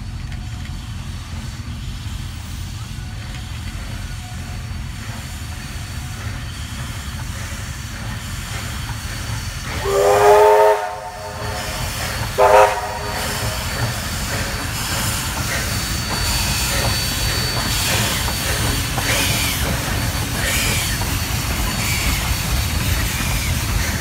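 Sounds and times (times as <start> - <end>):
steam train rumble: 0.0 - 24.0
steam locomotive whistle: 9.6 - 18.8.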